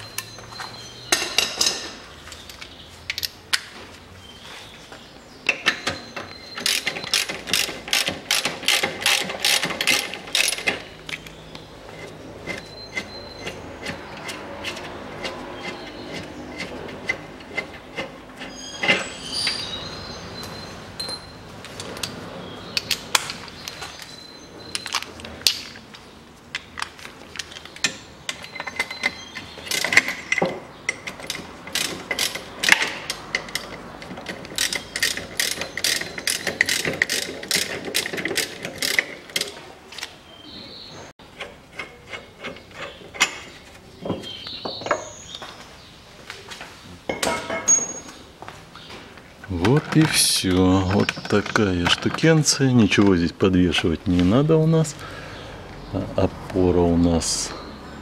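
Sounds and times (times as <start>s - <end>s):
ratchet wrench clicking: 34.6s - 39.5s.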